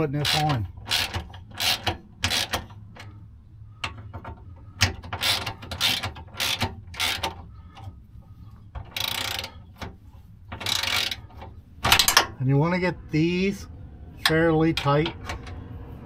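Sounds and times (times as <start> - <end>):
socket ratchet clicking: 0.2 - 3.1, 3.8 - 7.9, 8.8 - 12.3.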